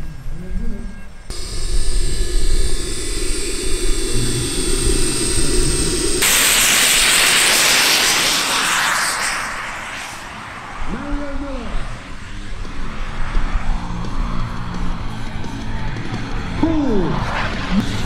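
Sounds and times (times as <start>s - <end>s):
model jet turbine whine: 0.0s - 18.0s
broad rushing hiss: 1.3s - 10.8s.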